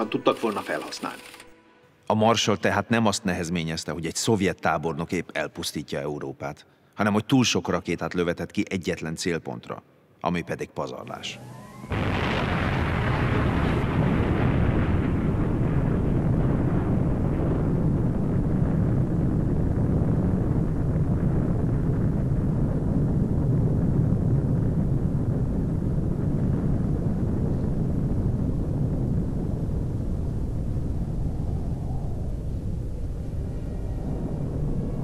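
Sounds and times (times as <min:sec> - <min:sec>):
explosion hiss: 0:11.2 - 0:31.5
explosion deep rumble: 0:11.4 - 0:35.0.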